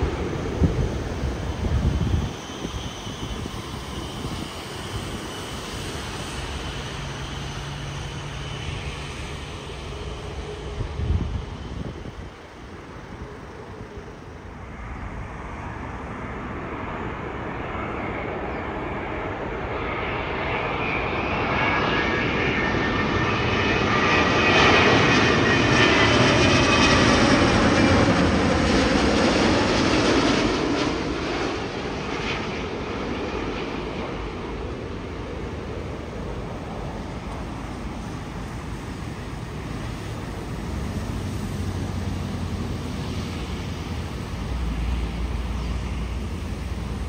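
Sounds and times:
jet airliner passing overhead: 0.0s - 47.0s.

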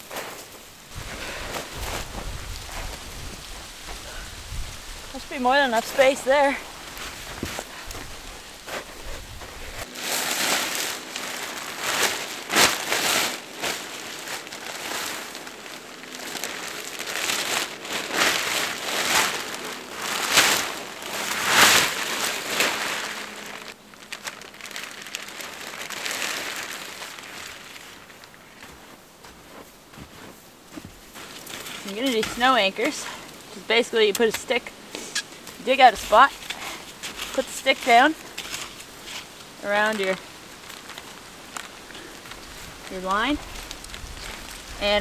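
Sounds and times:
tarp fabric rustling and crinkling: 0.0s - 45.0s.

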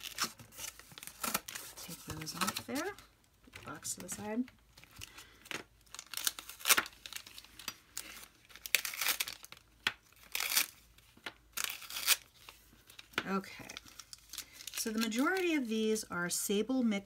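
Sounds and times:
tape tearing: 0.0s - 3.0s, 5.5s - 10.8s, 11.6s - 13.0s
plastic sleeves crinkling: 0.0s - 16.1s.

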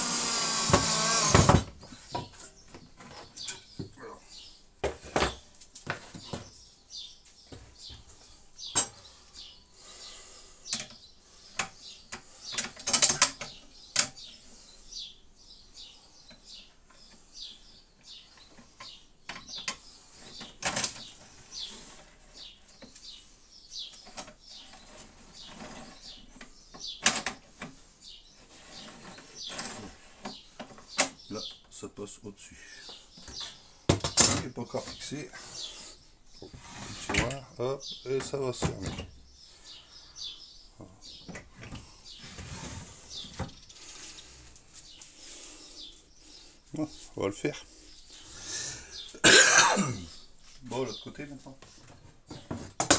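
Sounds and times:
wood and metal clicks and rattles: 11.6s - 14.3s, 18.3s - 21.3s, 23.9s - 27.8s, 33.2s - 35.2s.

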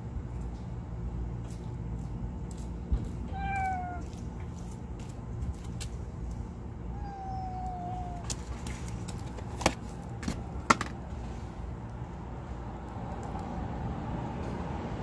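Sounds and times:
road traffic rumble: 0.0s - 15.0s
faint cat meow: 3.3s - 4.2s, 6.9s - 8.3s.

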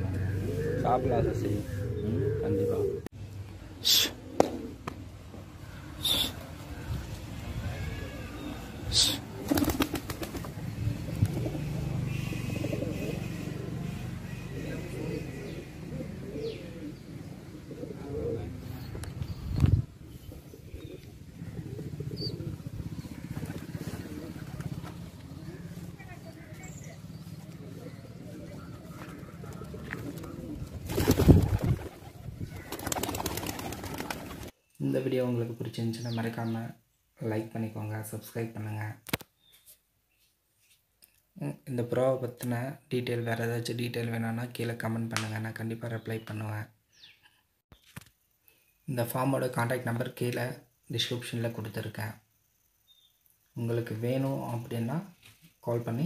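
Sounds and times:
pigeon cooing: 0.0s - 3.1s, 3.8s - 5.0s, 11.1s - 19.3s, 20.0s - 25.9s, 27.5s - 30.9s
pigeon wings flapping: 9.4s - 10.6s, 23.3s - 25.0s, 29.5s - 34.5s.

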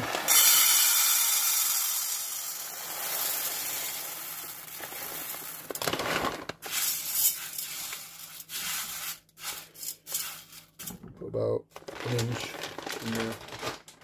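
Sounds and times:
hand raking through kernels: 0.0s - 10.9s
popcorn kernels pouring into metal pot: 0.0s - 10.9s, 11.9s - 13.9s.

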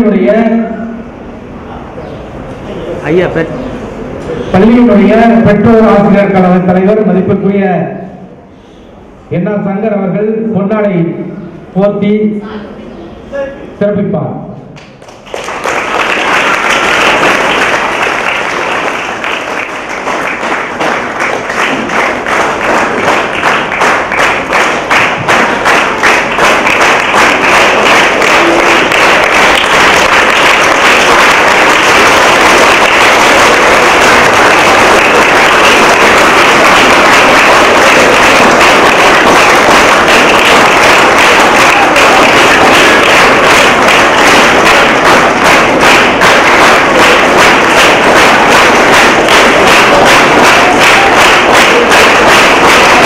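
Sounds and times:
audience applauding: 15.0s - 53.0s.

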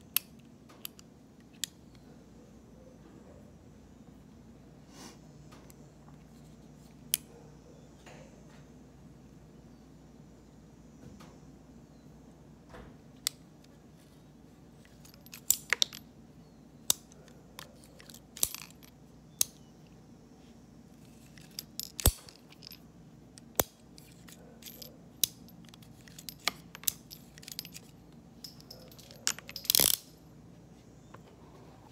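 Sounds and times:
revolver rattle: 23.5s - 30.1s.

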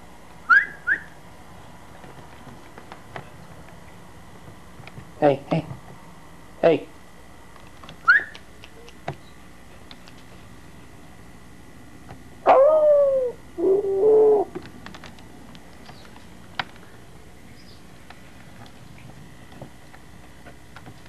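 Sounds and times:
puppy whining: 12.5s - 14.6s.

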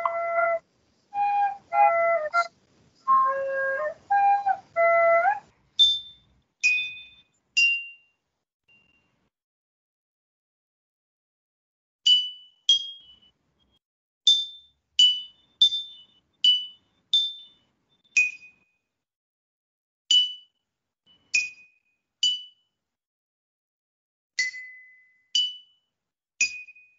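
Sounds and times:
tuned percussion tune: 0.0s - 0.6s.

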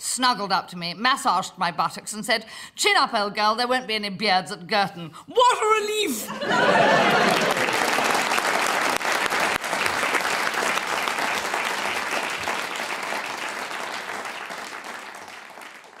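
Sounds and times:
studio audience applauding: 6.4s - 16.0s.

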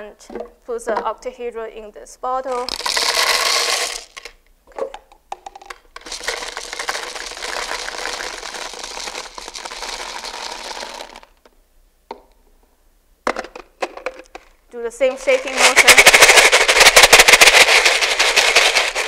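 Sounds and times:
small plastic pieces rattling: 2.5s - 4.4s, 5.3s - 11.4s, 13.4s - 19.0s.

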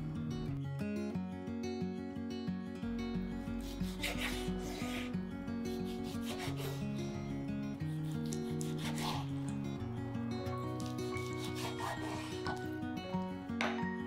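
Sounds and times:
acoustic guitar music: 0.0s - 14.0s
knife slicing onto cutting board: 5.9s - 6.8s, 8.0s - 9.3s, 10.8s - 12.6s.

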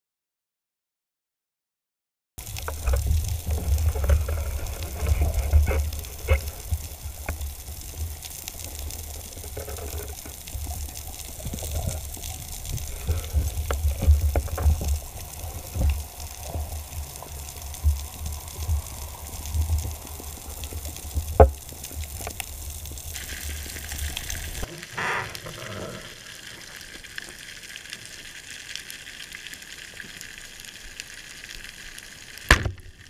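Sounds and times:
muffled underwater rumble: 2.4s - 26.4s
sharp knock: 32.5s - 32.8s.

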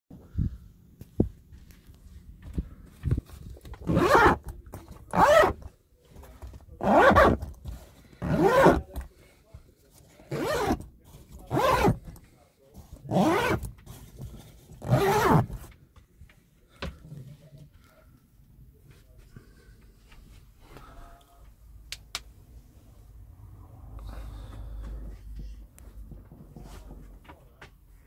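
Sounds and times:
zip pulled along fabric: 3.8s - 4.5s, 5.1s - 5.6s, 6.8s - 7.4s, 8.2s - 8.9s, 10.3s - 10.8s, 11.5s - 12.0s, 13.1s - 13.7s, 14.8s - 15.7s.

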